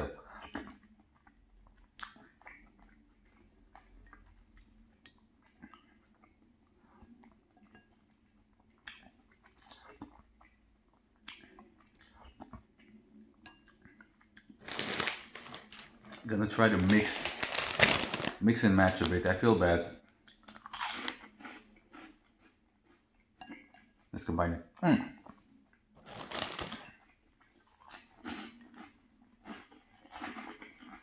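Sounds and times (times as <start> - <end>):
chewing and mouth sounds: 0.0 - 19.4, 20.1 - 24.1, 25.2 - 31.0
plastic snack bag crinkling: 14.6 - 19.8, 26.0 - 27.0.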